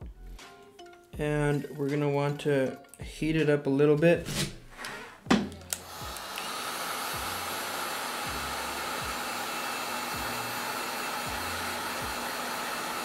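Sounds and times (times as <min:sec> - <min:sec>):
hot air gun blowing: 0:05.8 - 0:13.0.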